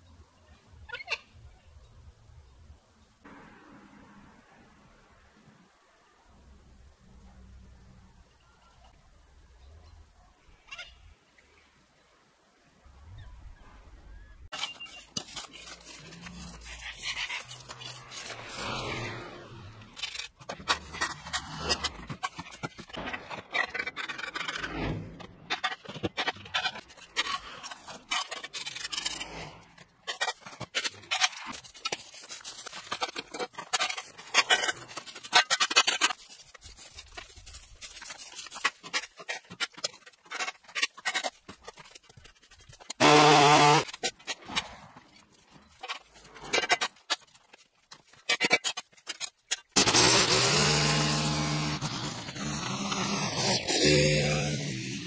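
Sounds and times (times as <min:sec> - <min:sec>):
rake scraping leaves on concrete: 0:14.5 - 0:25.1, 0:26.5 - 0:47.4.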